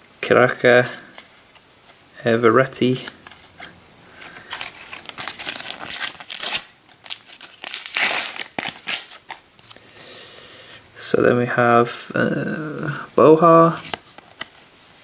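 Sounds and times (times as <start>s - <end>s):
paper wrapper tearing and crinkling: 4.2s - 9.7s.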